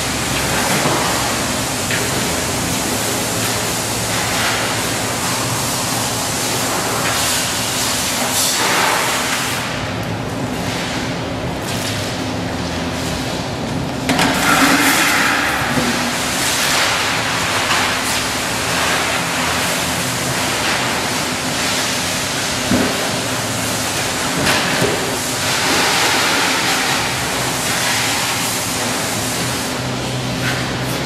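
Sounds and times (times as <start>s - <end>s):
spray wand blasting water: 0.0s - 9.7s, 14.4s - 30.9s.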